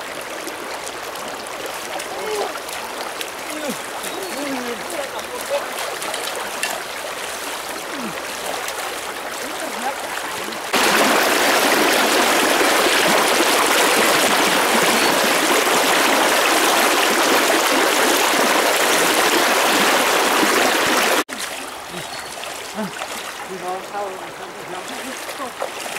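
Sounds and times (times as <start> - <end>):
stream rushing over stones: 0.0 - 25.9.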